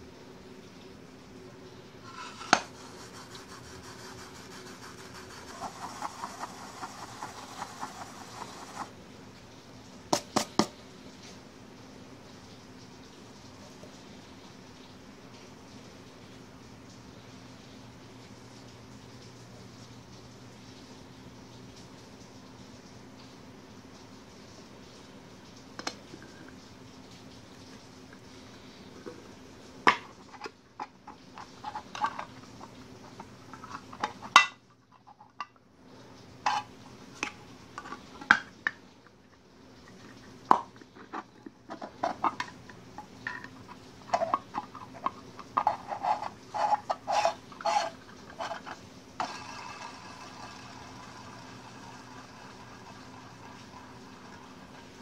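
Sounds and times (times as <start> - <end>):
metal rod scraping plastic: 2.1 - 8.9, 45.6 - 51.4.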